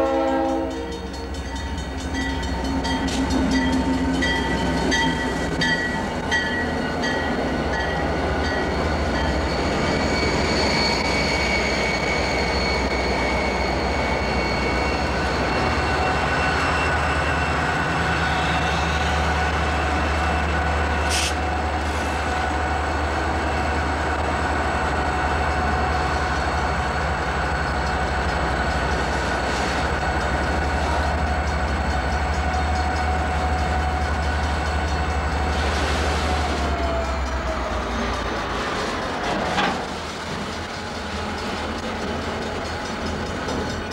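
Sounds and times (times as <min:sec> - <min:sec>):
train rumble: 0:00.0 - 0:43.9
high-pitched wheel squeal: 0:08.6 - 0:19.6.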